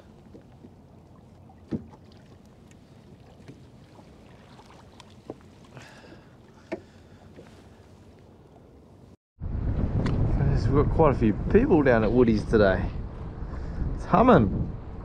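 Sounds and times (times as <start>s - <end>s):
water splash: 0.0s - 5.9s
wind and water wash: 0.0s - 15.0s
hollow knocks on kayak hull: 1.6s - 2.0s.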